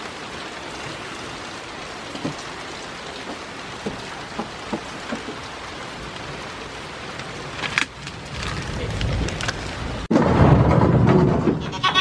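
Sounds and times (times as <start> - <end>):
steady rain falling: 0.0 - 11.6
soft dull knocks: 3.2 - 5.4.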